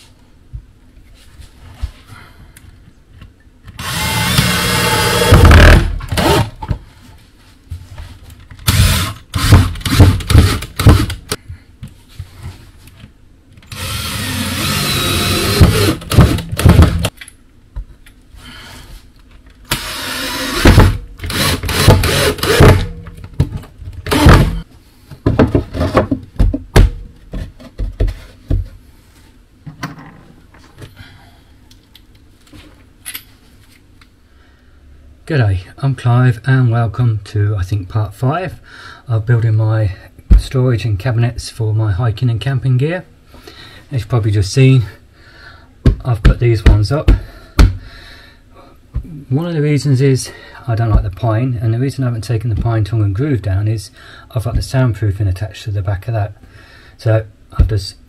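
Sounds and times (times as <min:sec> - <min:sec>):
cordless drill motor: 0:03.8 - 0:06.5, 0:08.7 - 0:11.3, 0:13.7 - 0:17.1, 0:19.7 - 0:22.8, 0:24.1 - 0:24.6
knocks and clicks of wood: 0:25.2 - 0:28.7.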